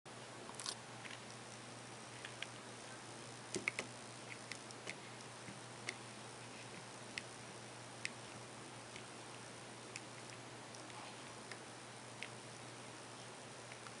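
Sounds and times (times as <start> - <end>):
steady low hum: 0.1 - 14.0.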